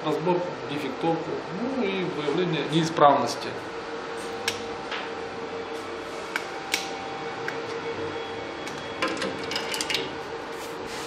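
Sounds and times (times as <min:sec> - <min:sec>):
test bench humming: 0:00.0 - 0:11.0.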